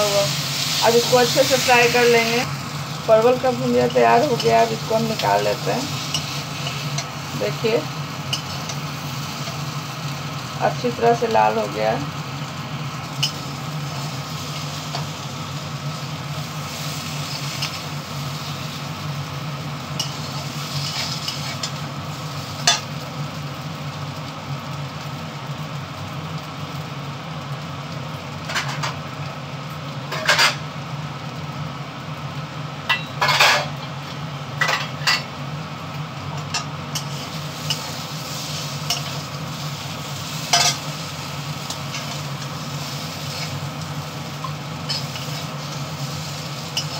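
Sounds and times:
low steady hum: 0.0 - 23.6
vegetables sizzling in a pan: 0.0 - 46.9
metal spatula scraping a pan: 30.1 - 30.6.

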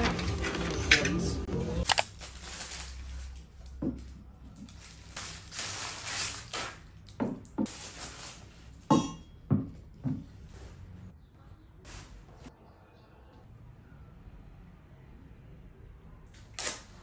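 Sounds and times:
plastic wrapping rustling: 1.8 - 7.0, 7.7 - 8.9.

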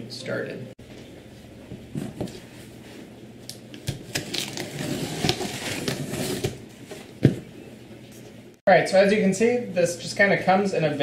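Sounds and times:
knife cutting packing tape: 3.7 - 6.6
cardboard rustling: 4.0 - 7.4.

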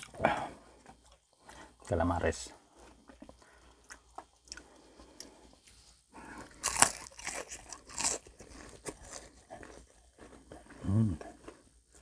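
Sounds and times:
chewing: 0.0 - 1.9, 2.7 - 12.0
crunching bites of fried squid: 6.4 - 12.0.

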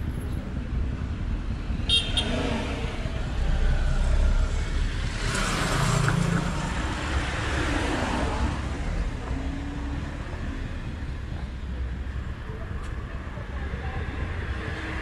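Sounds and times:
low rumble of traffic: 0.0 - 15.0.

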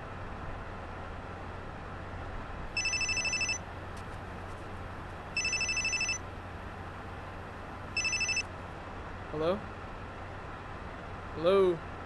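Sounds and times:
phone ringing electronic trill: 2.8 - 3.6, 5.4 - 6.2, 8.0 - 8.4.

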